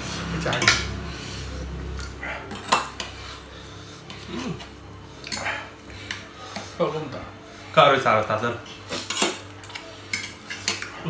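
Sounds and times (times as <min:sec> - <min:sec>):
cutlery clinking on plates: 0:09.0 - 0:11.0.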